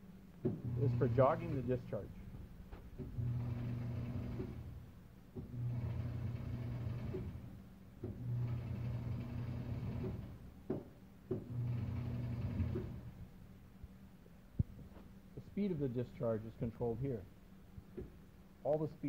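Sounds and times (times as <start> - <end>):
electric motor hum: 0.5 - 1.8, 3.0 - 10.5, 11.3 - 13.2.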